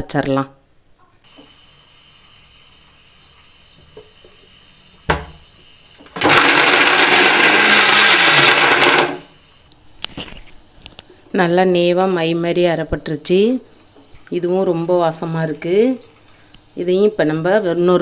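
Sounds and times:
mixer grinder running: 5.9 - 9.4.

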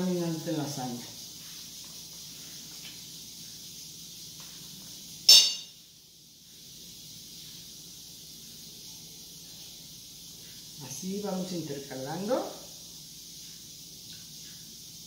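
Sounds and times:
faint steady hiss: 0.0 - 15.0
utensil clinking on metal bowl: 5.3 - 5.8.

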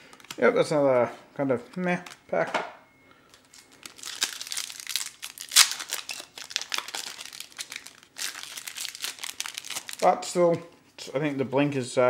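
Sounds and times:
foil wrapper crinkling: 3.3 - 10.2
foil ripping: 3.5 - 10.1.

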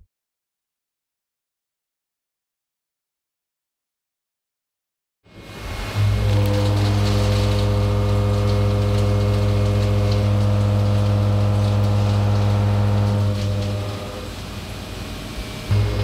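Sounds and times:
milling cutter humming: 5.4 - 16.0.

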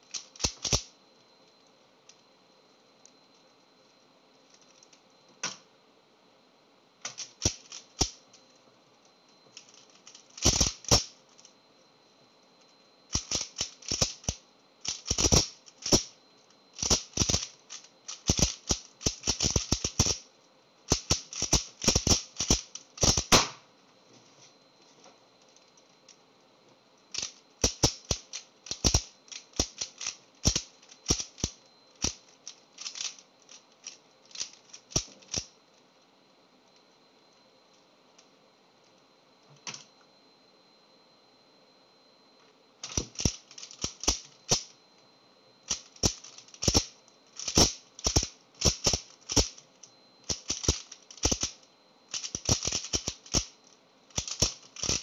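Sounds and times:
puzzle cube plastic clicks: 0.1 - 0.9, 7.1 - 8.2, 9.6 - 11.1, 13.1 - 16.1, 16.8 - 20.2, 20.9 - 23.4, 27.1 - 35.5, 42.8 - 44.7, 45.7 - 49.6, 50.2 - 55.0.

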